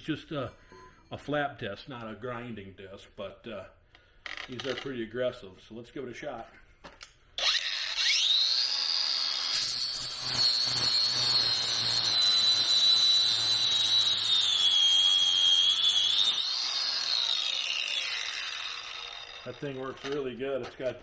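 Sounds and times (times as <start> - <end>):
angle grinder grinding steel: 7.4 - 20.9.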